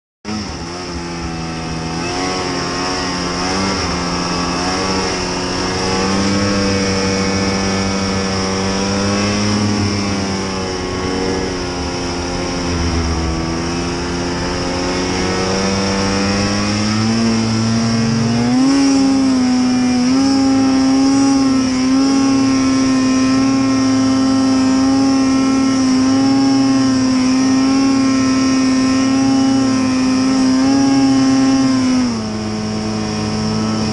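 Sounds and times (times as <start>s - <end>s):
snowmobile engine revving: 0.3s - 33.9s
steady high whine: 0.4s - 18.4s.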